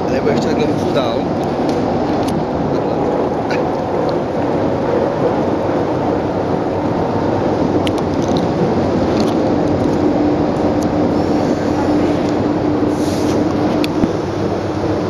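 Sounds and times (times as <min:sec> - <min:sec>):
boat engine drone: 0:00.0 - 0:15.0
steady hum: 0:00.0 - 0:15.0.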